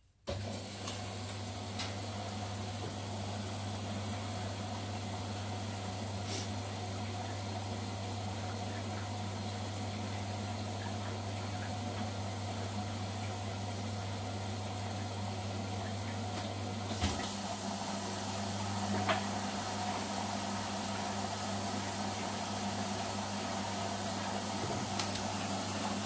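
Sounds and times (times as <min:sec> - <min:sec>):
washing machine hum: 0:00.0 - 0:26.0
washing machine clicks: 0:24.6 - 0:25.5.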